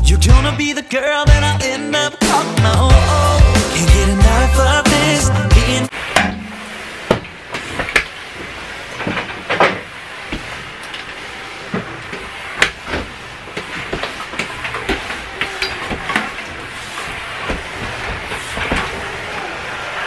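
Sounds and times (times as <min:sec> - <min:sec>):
background music: 0:00.0 - 0:05.9
mop knocking: 0:06.2 - 0:19.5
steam mop hissing: 0:06.8 - 0:20.0.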